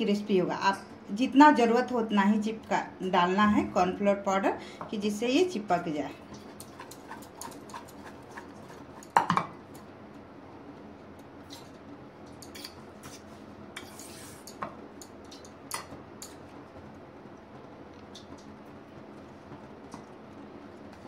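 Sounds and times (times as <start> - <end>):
fork clinking in metal bowl: 6.4 - 9.4, 12.3 - 12.8.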